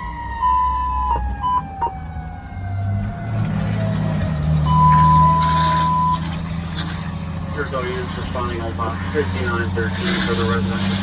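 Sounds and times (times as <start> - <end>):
fire truck siren winding down: 0.0 - 6.4
diesel engine: 0.0 - 11.0.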